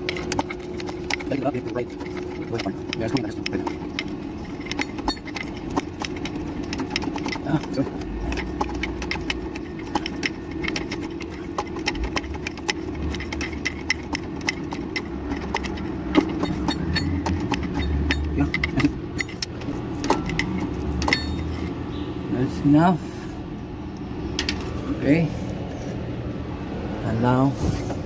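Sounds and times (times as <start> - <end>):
diesel engine idling: 0.0 - 27.4
metallic clicks of hand tools: 11.8 - 21.5.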